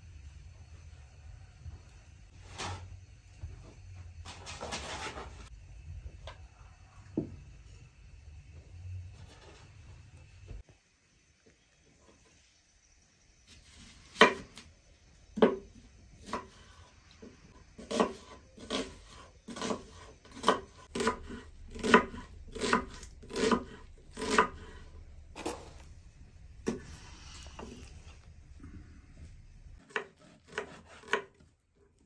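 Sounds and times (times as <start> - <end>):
knife chopping on wooden board: 17.8 - 24.8, 29.8 - 31.5.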